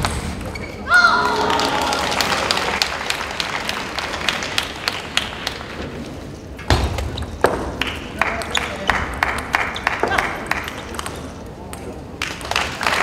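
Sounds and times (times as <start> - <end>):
echoing claps and taps: 7.4 - 11.2.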